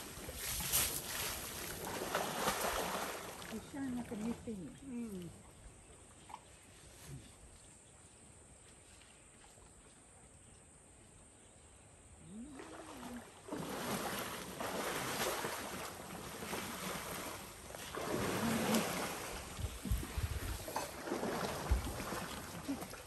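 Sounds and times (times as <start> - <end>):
elephants splashing water: 0.0 - 5.4, 12.3 - 23.0.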